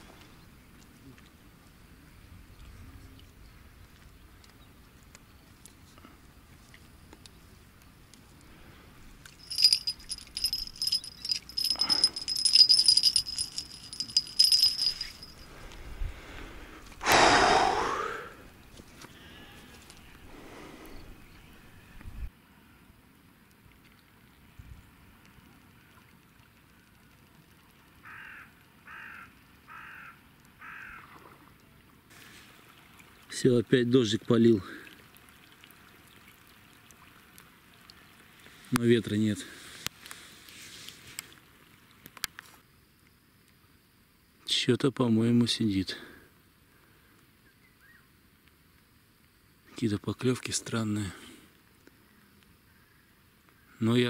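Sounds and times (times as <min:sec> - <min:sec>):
faint background hiss: 0:00.0 - 0:30.7
small bell jingling: 0:09.3 - 0:15.5
crow cawing: 0:28.0 - 0:31.0.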